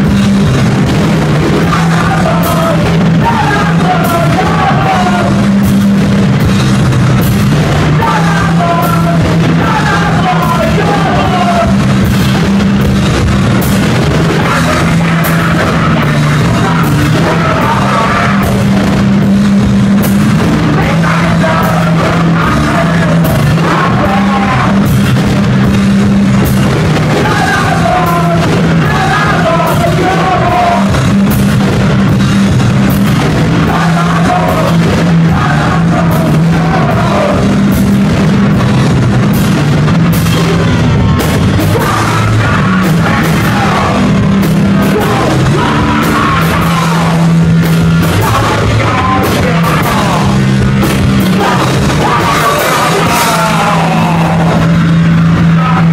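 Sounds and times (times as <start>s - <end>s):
drum hits: 0.0s - 55.9s
heavy rock band playing: 0.0s - 55.9s
person singing: 1.3s - 5.6s, 7.8s - 11.9s, 14.2s - 18.9s, 20.4s - 25.1s, 26.9s - 31.4s, 32.8s - 37.8s, 41.6s - 55.9s.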